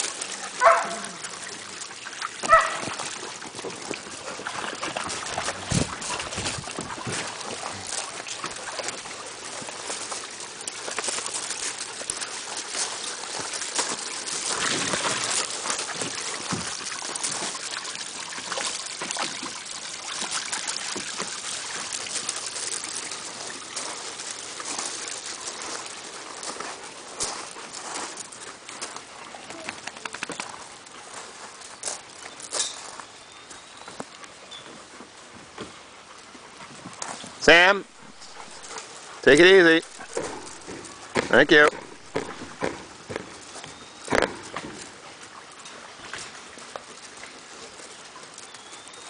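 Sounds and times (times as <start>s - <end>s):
water splashing in pool: 0.0s - 33.2s, 35.2s - 49.0s
dog barking: 0.6s - 1.2s, 2.5s - 2.9s.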